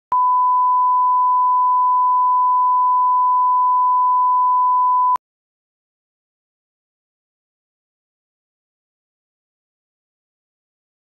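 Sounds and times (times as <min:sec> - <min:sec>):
steady sine test tone: 0:00.1 - 0:05.2.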